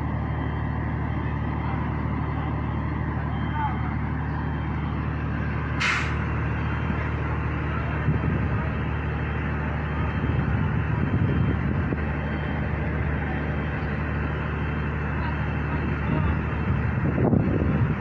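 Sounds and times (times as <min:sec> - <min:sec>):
heavy diesel engine running: 0:00.0 - 0:18.0
sharp hiss of released air: 0:05.8 - 0:06.2.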